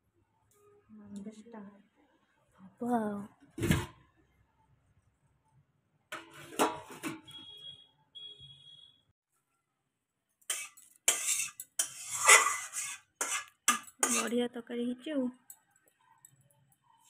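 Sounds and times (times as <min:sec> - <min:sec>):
steel utensils scraping and clattering: 0:06.2 - 0:07.4, 0:10.5 - 0:14.4.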